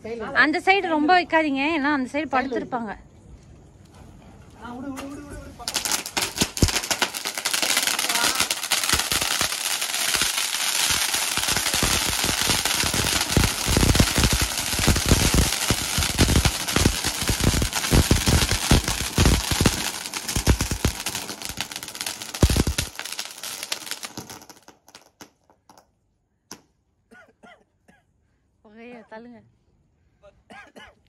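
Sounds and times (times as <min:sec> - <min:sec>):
firework pops: 0:05.0 - 0:25.8
firework crackling hiss: 0:05.6 - 0:25.3.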